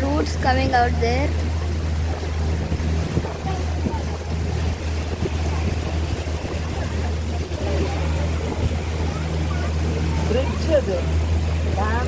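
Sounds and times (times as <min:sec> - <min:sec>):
motorboat engine drone: 0:00.0 - 0:12.0
water rushing past hull: 0:00.0 - 0:12.0
wind on microphone: 0:01.5 - 0:12.0.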